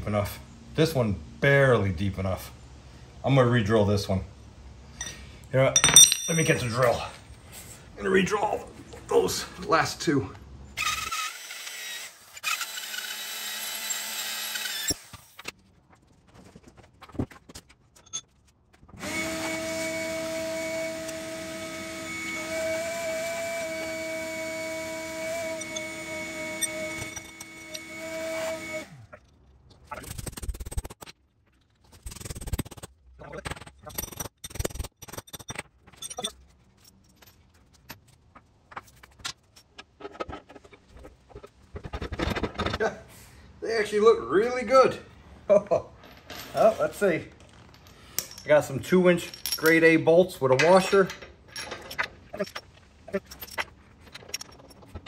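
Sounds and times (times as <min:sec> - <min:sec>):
light metallic clinks: 0:05.8 - 0:06.8
electric drill whining: 0:10.8 - 0:15.3, 0:19.0 - 0:29.1.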